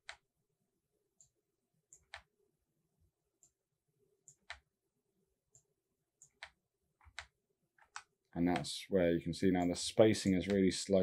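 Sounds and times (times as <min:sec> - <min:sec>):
mouse and keyboard clicks: 0:06.2 - 0:08.7.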